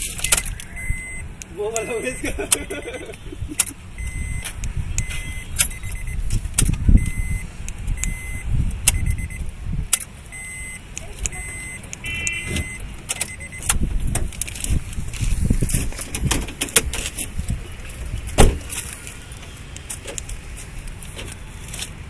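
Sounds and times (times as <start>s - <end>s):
ignition key clicks: 0.1s - 14.8s
car chime beeping: 0.2s - 6.3s, 6.9s - 14.1s
door locks clicking: 10.9s - 14.5s, 16.0s - 17.3s.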